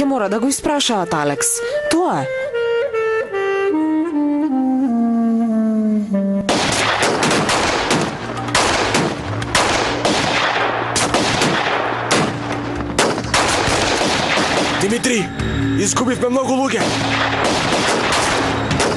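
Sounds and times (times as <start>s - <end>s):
woodwind melody: 0.0s - 6.6s
heavy rifle fire: 6.5s - 15.0s, 16.7s - 18.9s.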